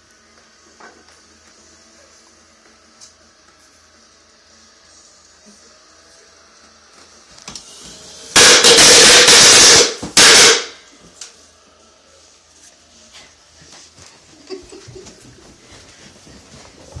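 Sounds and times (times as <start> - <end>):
firecrackers banging: 8.4 - 10.8.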